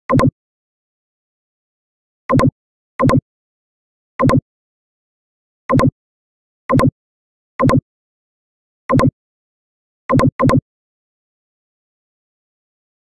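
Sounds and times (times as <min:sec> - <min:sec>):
computer mouse clicks: 0:02.3 - 0:03.2, 0:04.2 - 0:04.4, 0:07.6 - 0:07.8, 0:08.9 - 0:09.1, 0:10.1 - 0:10.6.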